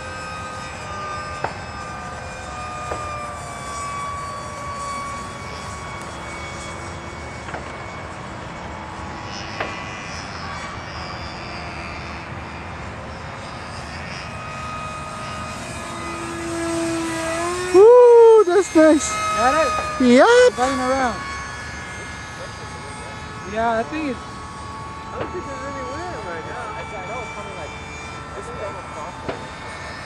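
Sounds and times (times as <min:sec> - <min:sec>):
electric ducted fan whining: 0:00.0 - 0:30.0.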